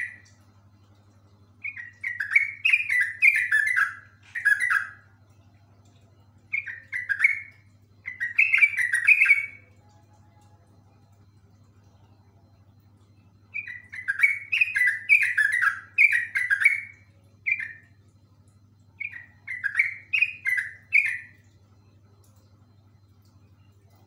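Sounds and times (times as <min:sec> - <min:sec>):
bird singing rolling song: 0:00.0 - 0:00.4, 0:01.6 - 0:05.1, 0:06.5 - 0:09.8, 0:13.5 - 0:18.0, 0:19.0 - 0:21.5.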